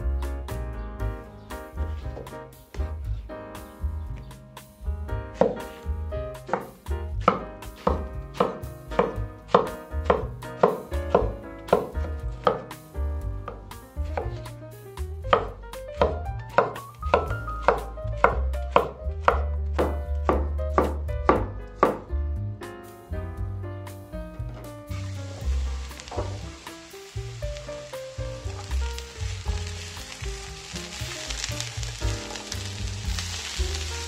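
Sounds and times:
knife chopping on wooden board: 5.4 - 5.7, 6.4 - 12.8, 13.4 - 14.5, 15.3 - 22.1.

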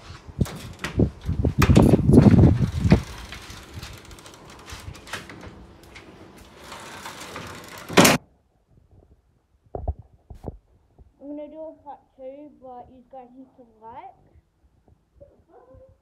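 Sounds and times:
metal screen door rattling: 0.4 - 8.2.

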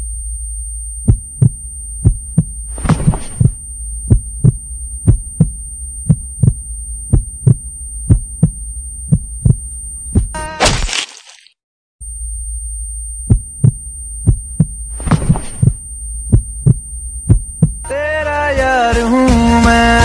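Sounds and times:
heartbeat thumps: 1.0 - 10.4, 13.2 - 17.9.

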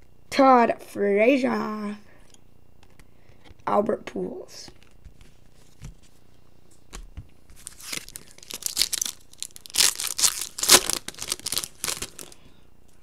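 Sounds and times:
foil wrapper tearing and crinkling: 7.6 - 12.4.

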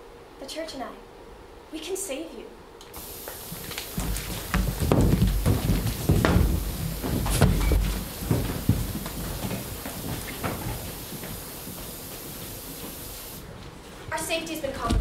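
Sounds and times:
footsteps on a stage: 3.0 - 15.0.

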